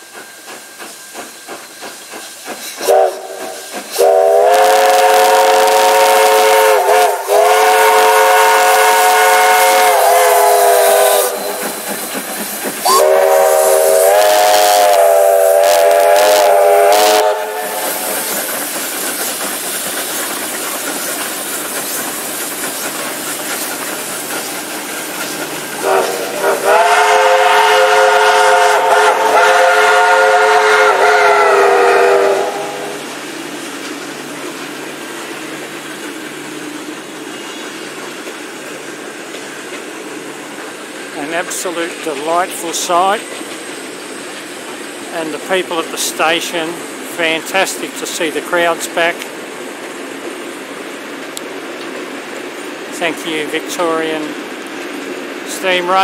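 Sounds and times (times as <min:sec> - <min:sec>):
passing steam locomotives: 0:00.0 - 0:56.0
steam hiss: 0:00.0 - 0:56.0
steam train whistles: 0:02.8 - 0:12.1, 0:12.8 - 0:18.6, 0:25.8 - 0:33.1.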